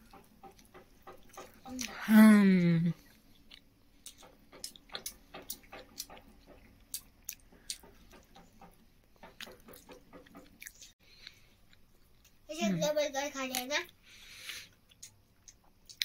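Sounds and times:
person chewing: 3.0 - 12.4, 14.0 - 16.0.

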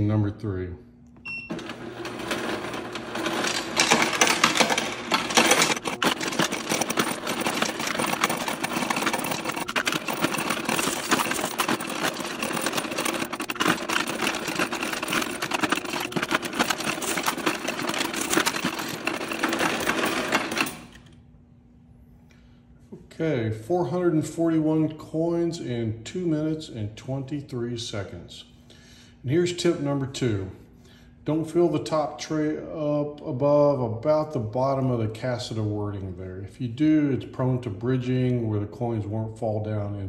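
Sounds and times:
coin sorter motor humming: 1.3 - 21.1
coins clattering: 1.5 - 21.1.

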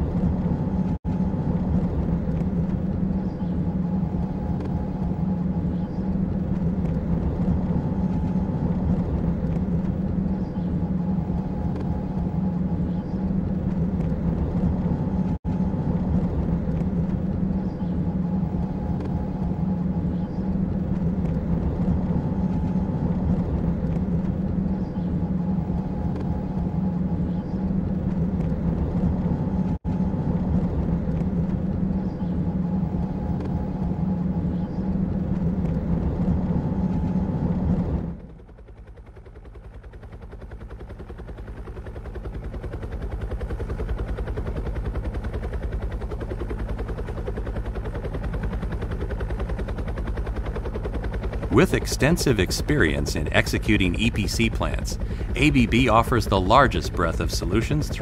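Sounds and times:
low vehicle engine hum: 0.0 - 58.0
faint whine: 48.5 - 58.0.

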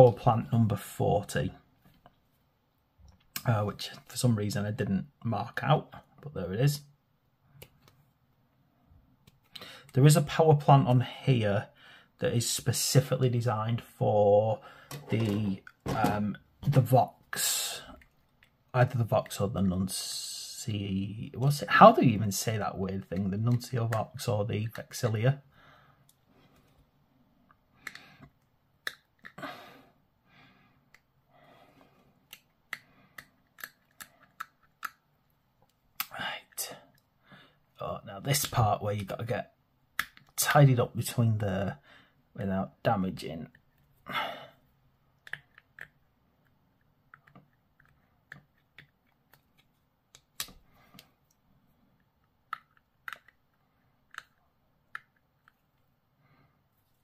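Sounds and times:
metal tool clicking on plastic: 32.3 - 35.0, 45.2 - 51.1, 52.5 - 53.4, 54.1 - 55.6
metal tool clicking and scraping plastic: 32.3 - 35.8, 52.2 - 55.7.

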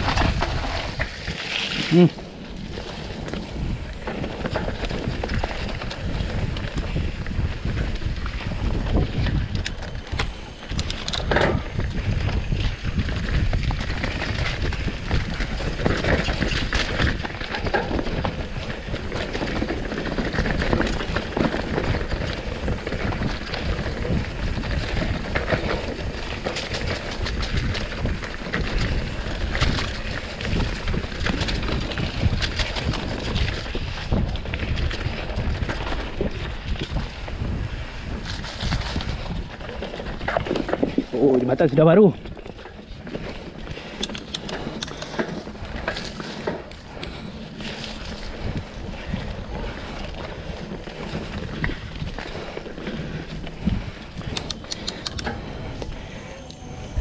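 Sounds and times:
bike rattling over rough ground: 0.0 - 57.0
tyres on dirt: 0.0 - 57.0
wind on microphone: 0.0 - 57.0.

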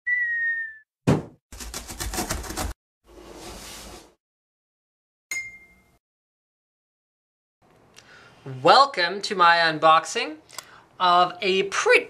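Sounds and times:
sharp thud: 1.0 - 1.4.

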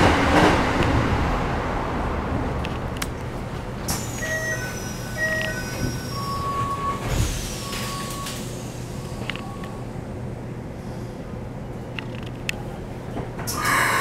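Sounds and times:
train car low hum: 0.0 - 14.0
short beeps: 4.2 - 7.0.

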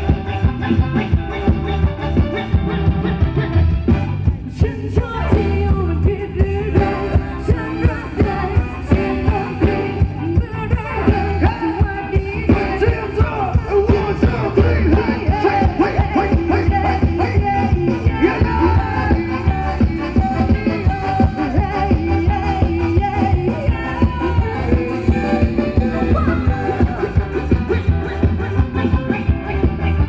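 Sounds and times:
live band dance music: 0.0 - 30.0
person singing: 4.4 - 30.0.

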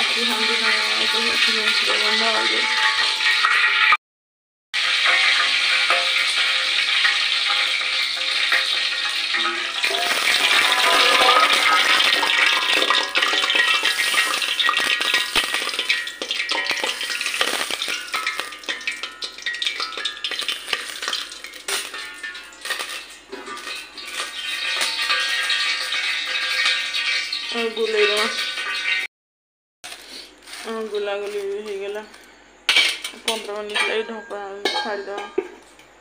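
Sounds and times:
hot oil sizzling: 0.0 - 4.0, 4.8 - 29.1, 29.8 - 36.0
stirring in steel bowl: 9.3 - 26.8.

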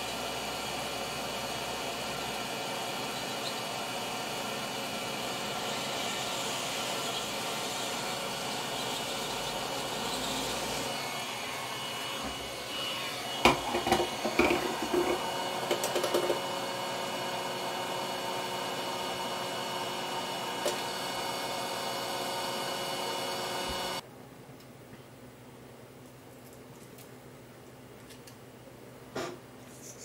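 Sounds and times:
hot-air blower blowing: 0.0 - 24.0
clicks and taps: 13.5 - 16.4.

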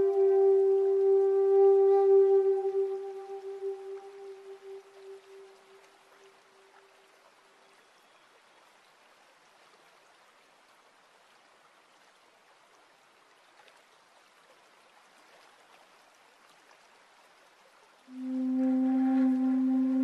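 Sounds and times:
music with held note: 0.0 - 5.5, 18.1 - 20.0
water trickling into pool: 0.0 - 20.0.

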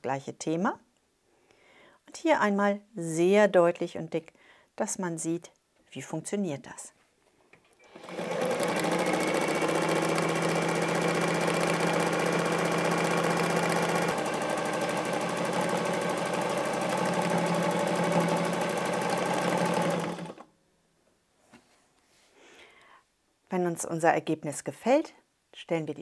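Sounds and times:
sewing machine stitching: 7.8 - 20.4.

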